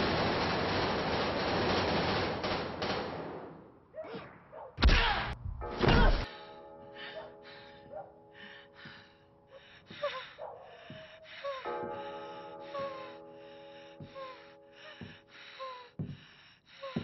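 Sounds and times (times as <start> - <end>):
woman gasping breaths: 6.2 - 17.0.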